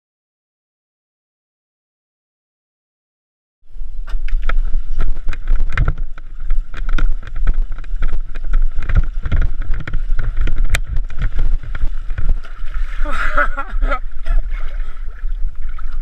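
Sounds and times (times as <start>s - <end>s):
wind rumble on microphone: 3.7s - 16.0s
water splashing and slapping: 4.0s - 16.0s.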